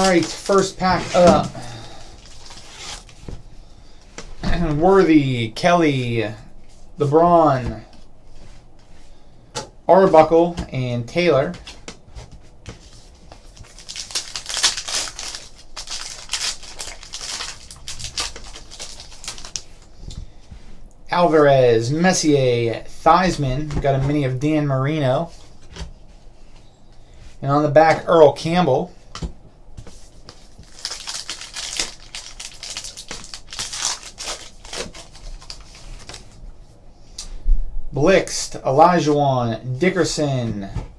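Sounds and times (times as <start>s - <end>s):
wrapper torn and crinkled: 0.0s - 1.2s, 13.5s - 19.9s, 30.6s - 36.2s.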